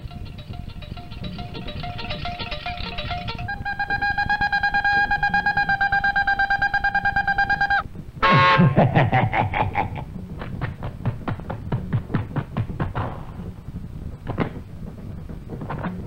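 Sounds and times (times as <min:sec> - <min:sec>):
steady pulsing high tone: 0:00.0 - 0:09.0.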